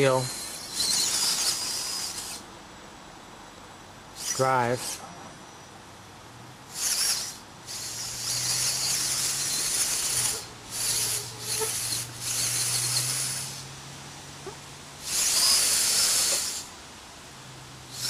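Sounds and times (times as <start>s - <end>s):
robot motors whirring: 0.0s - 2.4s, 6.7s - 13.7s, 14.4s - 16.7s
steady low hum: 0.0s - 18.0s.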